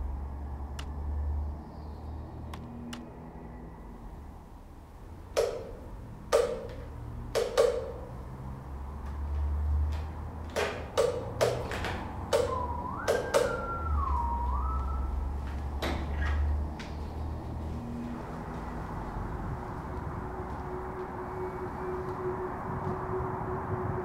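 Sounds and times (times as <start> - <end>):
high rising and falling tone: 12.1 - 15.8, 16.5 - 24.0.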